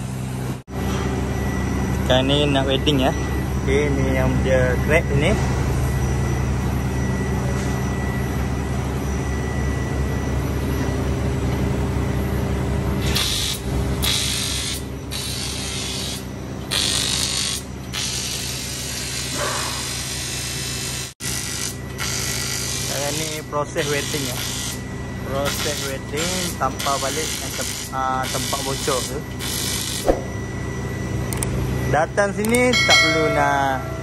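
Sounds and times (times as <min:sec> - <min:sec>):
steady machine hum: 0:00.0 - 0:34.0
welding arc hiss: 0:13.0 - 0:24.8, 0:25.5 - 0:30.1.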